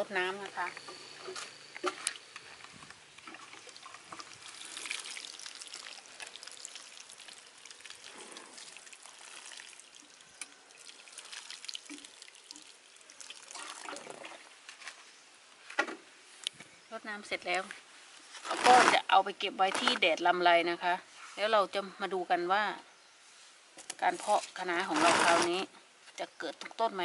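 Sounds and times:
water pattering on soil: 3.2s - 15.0s.

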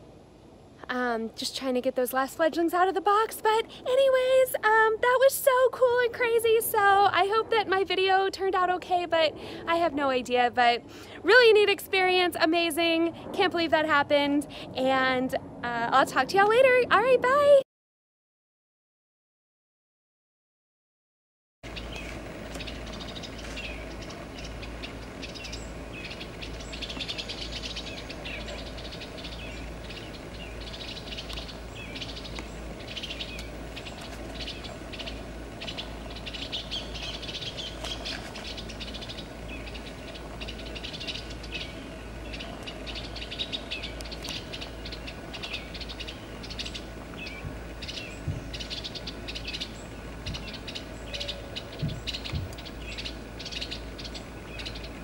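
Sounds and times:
birds chirping: 21.6s - 55.0s.

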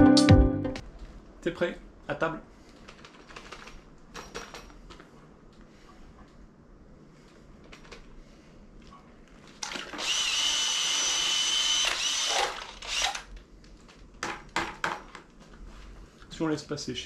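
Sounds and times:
cordless drill mixer whining: 9.7s - 13.3s.

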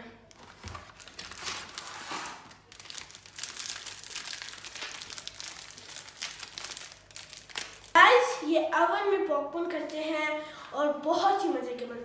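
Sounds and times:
plastic wrapping crinkling: 0.3s - 8.0s.

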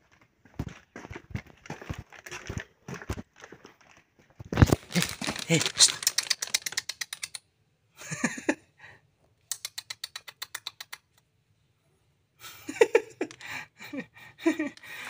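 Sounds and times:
fast run of small clicks: 4.6s - 7.4s.

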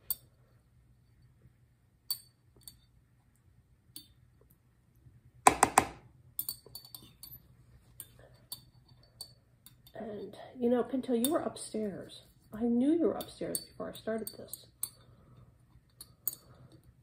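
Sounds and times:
louder knocks: 5.5s - 6.0s.

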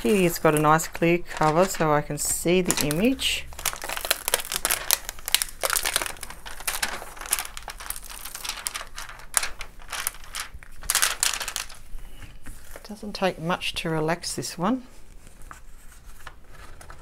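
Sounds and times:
plastic cover crinkling: 0.0s - 13.2s.

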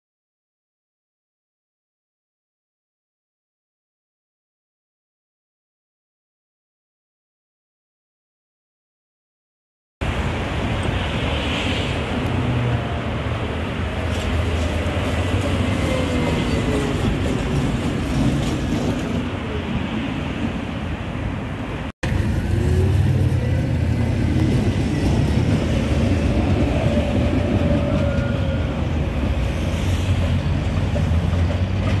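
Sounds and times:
road traffic: 10.0s - 32.0s
tram on street rails: 10.0s - 32.0s.

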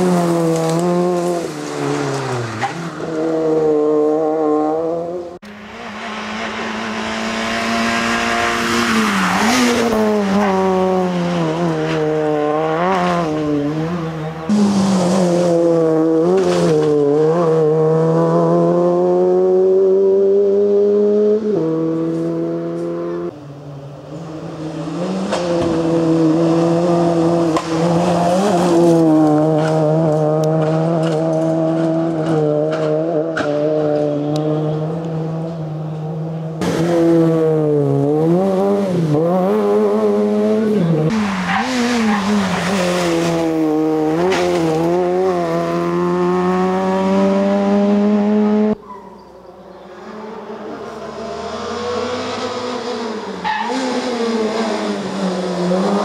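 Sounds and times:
rally car engine revving: 0.0s - 23.4s, 24.0s - 48.9s, 49.7s - 56.0s.

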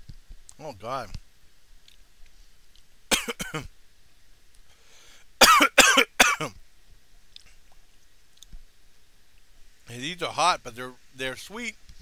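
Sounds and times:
man coughing: 3.1s - 3.7s, 5.4s - 6.5s.

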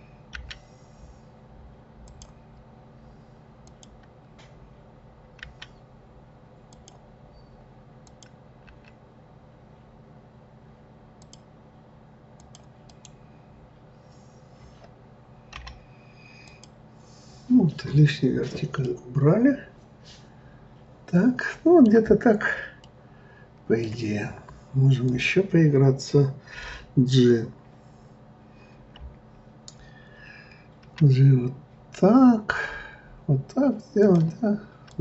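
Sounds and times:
low electrical hum: 0.0s - 35.0s.

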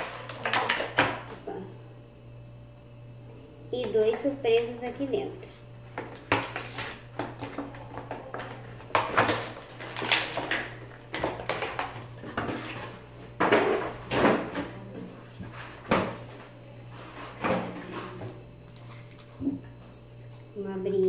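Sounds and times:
plastic packaging crackling: 6.0s - 12.9s.

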